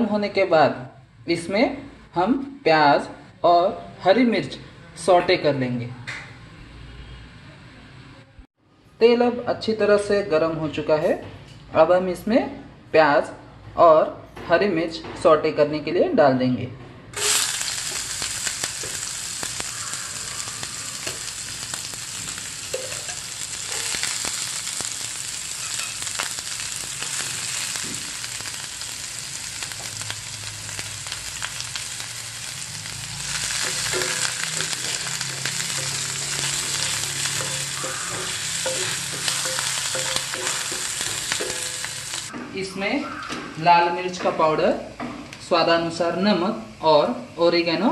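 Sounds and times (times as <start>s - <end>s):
onion sizzling in hot oil: 17.2s - 42.3s
wooden spatula stirring: 33.5s - 42.1s.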